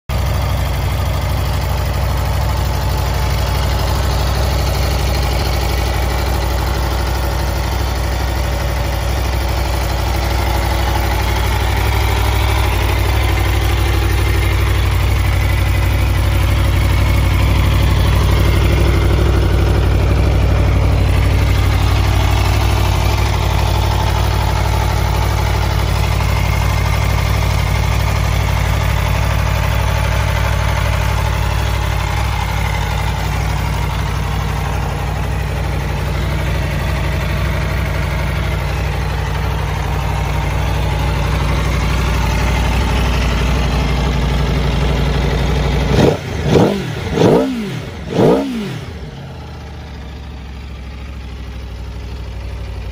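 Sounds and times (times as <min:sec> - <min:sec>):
motorcycle engine idling: 0:00.1 - 0:52.9.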